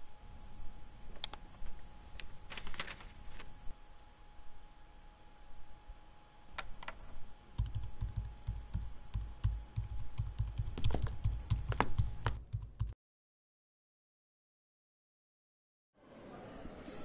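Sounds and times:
laptop keyboard typing: 7.6s - 13.0s.

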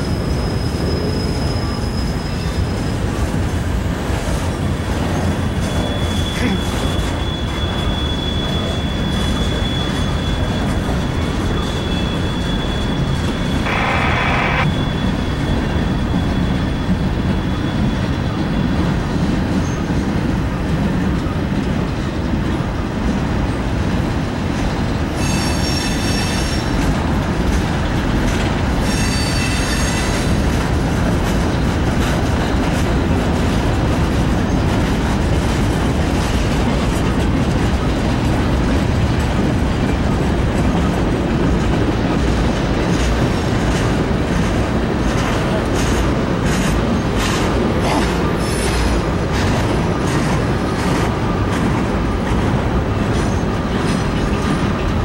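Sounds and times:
high wheel squeal: 0.0s - 3.2s, 4.5s - 18.9s, 25.1s - 26.8s, 28.8s - 30.5s
train wheels rumbling on rail: 0.0s - 55.0s
harsh wheel screech: 11.5s - 15.0s.

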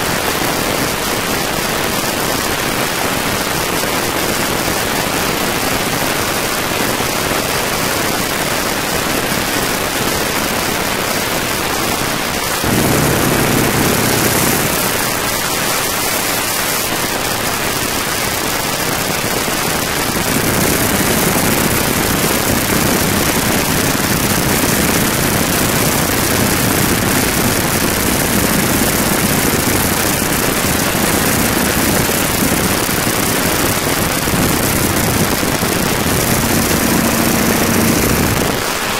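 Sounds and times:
propeller plane engine running: 12.6s - 16.9s, 19.4s - 38.7s.

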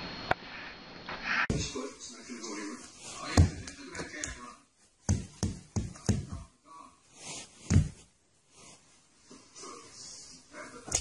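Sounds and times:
soft thumps and knocks: 5.0s - 6.5s, 7.6s - 8.1s.

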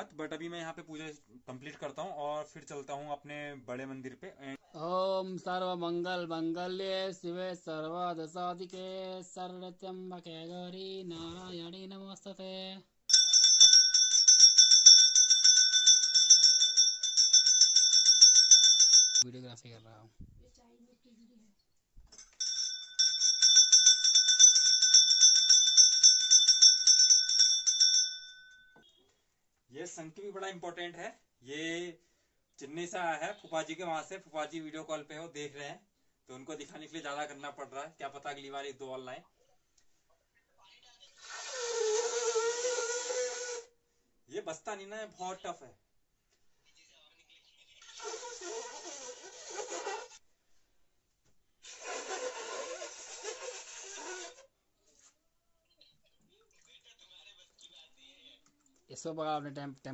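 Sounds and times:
hand bell rung rapidly: 13.1s - 19.3s, 22.4s - 28.8s
conch shell blown breathily: 41.2s - 43.8s, 48.0s - 50.0s, 51.6s - 54.4s.

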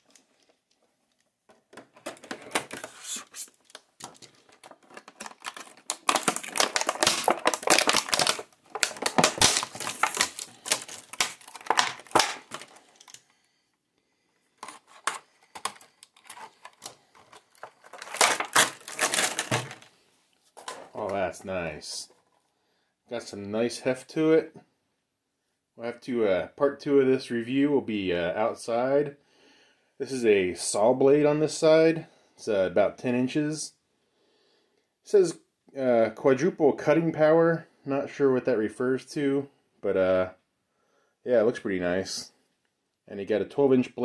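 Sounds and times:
plastic packaging crackling and clicking: 0.0s - 13.3s, 14.6s - 19.9s, 20.6s - 21.2s.

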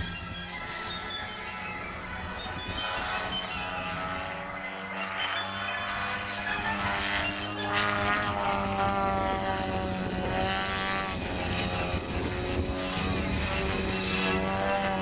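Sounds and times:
model plane engine and propeller: 0.0s - 15.0s.

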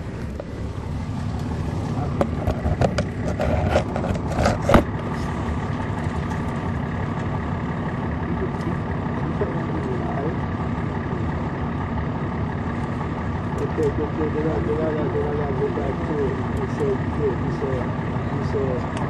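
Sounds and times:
bus diesel engine rumbling: 0.0s - 19.0s.

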